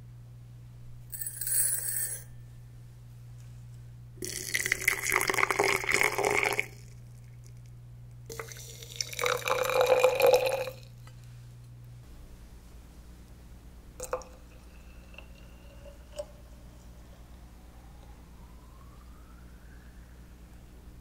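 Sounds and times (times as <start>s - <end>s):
water pouring into glass bottle: 4.2s - 6.8s, 8.3s - 10.9s, 14.0s - 16.3s.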